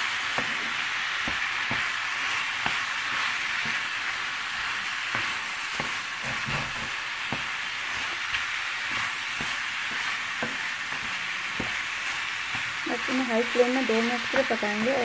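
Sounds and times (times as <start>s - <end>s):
sauce and pasta sizzling in a pan: 0.0s - 15.0s
spatula knocking against pan: 9.4s - 11.8s.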